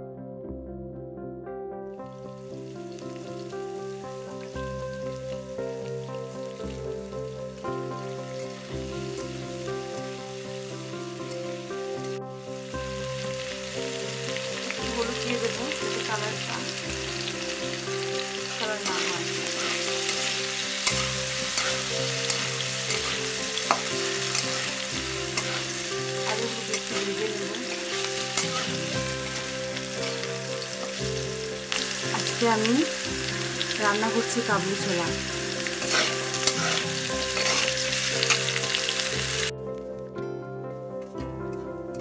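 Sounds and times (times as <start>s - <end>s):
potatoes sizzling in oil: 2.4s - 39.5s
metal spatula scraping pan: 18.8s - 27.2s, 28.0s - 30.2s, 35.8s - 38.4s.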